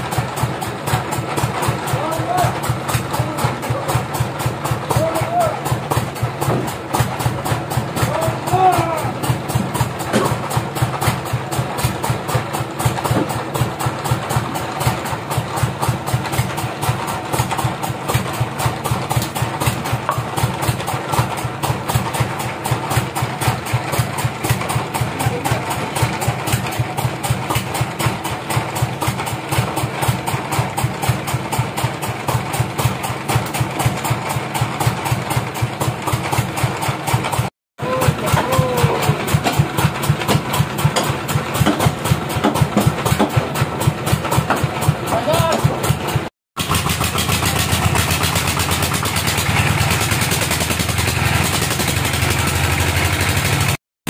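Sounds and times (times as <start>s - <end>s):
sawmill engine idling: 0.0s - 53.8s.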